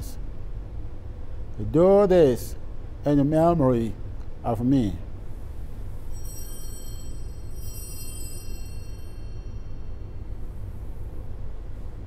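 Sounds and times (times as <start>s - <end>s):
steady low hum: 0.0s - 12.0s
altar bell ringing: 6.0s - 10.7s.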